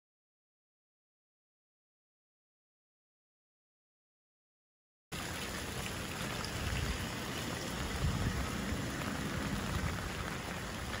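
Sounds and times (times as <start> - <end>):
rain falling on wet street: 5.2 - 11.0.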